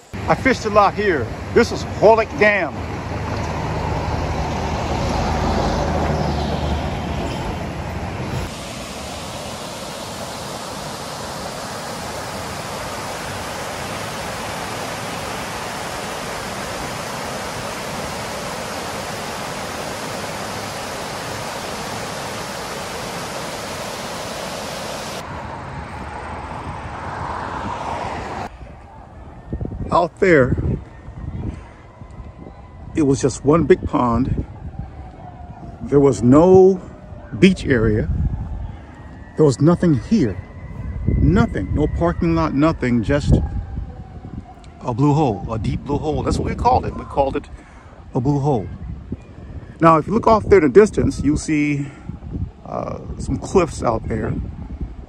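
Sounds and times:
water rushing over spillway: 8.4s - 25.2s
shallow water over rocks: 8.5s - 25.2s.

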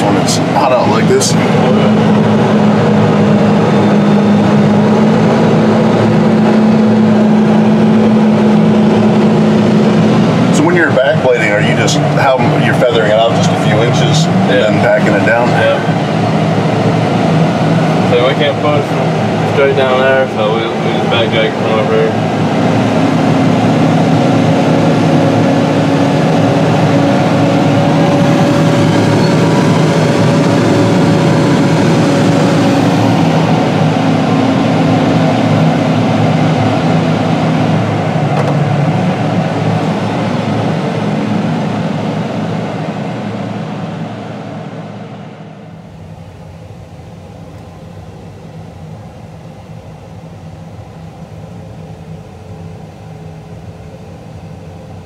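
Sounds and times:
engine hum: 0.0s - 55.0s
tractor diesel engine running: 0.0s - 55.0s.

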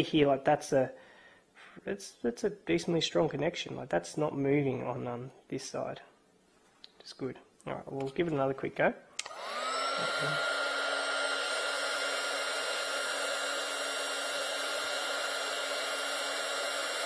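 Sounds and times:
heat gun fan whining: 9.2s - 17.0s.

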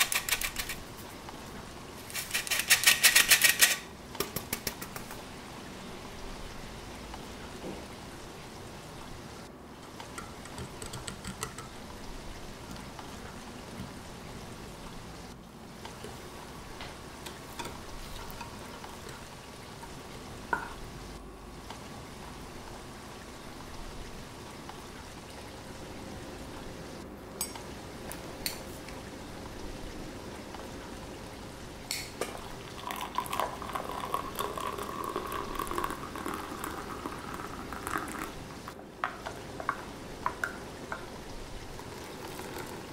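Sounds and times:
wire whisk stirring batter: 0.0s - 0.8s, 2.1s - 3.8s
hot water pouring into mug: 32.0s - 42.9s.

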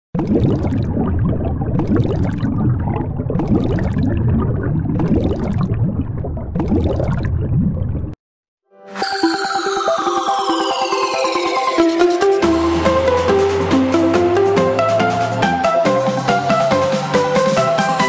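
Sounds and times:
underwater rush and gurgle: 0.2s - 8.2s.

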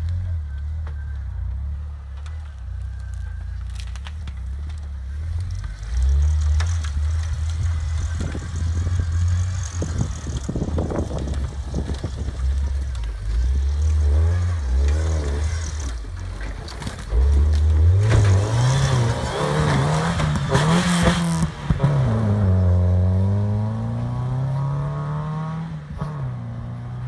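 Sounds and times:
off-road vehicle engine: 0.0s - 27.0s.

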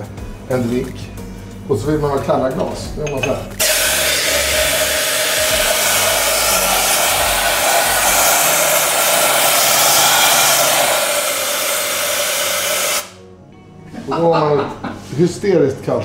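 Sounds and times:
loud gas hiss: 3.6s - 13.2s.

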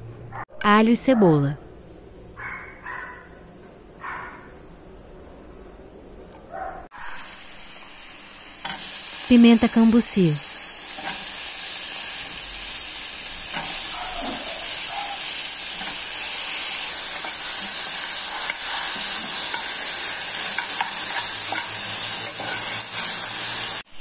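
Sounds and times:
vegetables sizzling in hot oil: 7.0s - 24.0s
metal spoon scraping a pan: 10.9s - 11.4s, 13.5s - 23.7s.

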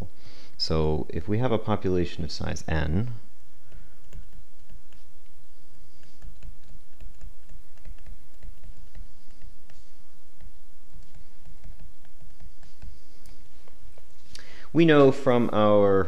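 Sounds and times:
stylus tapping on tablet screen: 3.7s - 14.3s.

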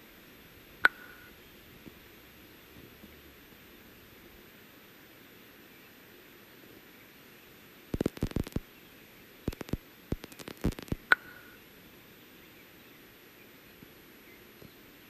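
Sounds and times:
faint steady hiss: 0.0s - 15.0s
sharp clicks and knocks: 8.0s - 8.6s, 9.5s - 11.3s.

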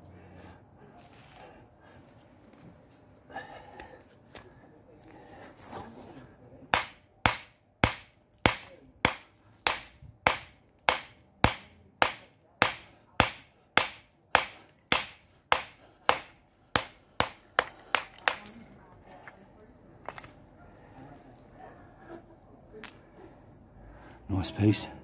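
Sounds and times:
hammer striking rock: 6.7s - 18.6s.

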